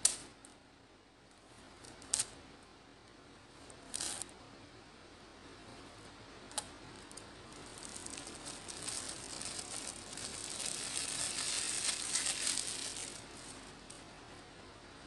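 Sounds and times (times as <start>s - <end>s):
plastic wrap crinkling: 7.0s - 13.9s.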